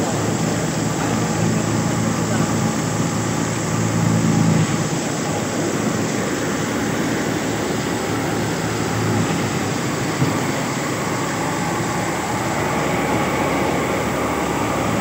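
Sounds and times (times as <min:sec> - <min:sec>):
wheat thresher running: 0:00.0 - 0:15.0.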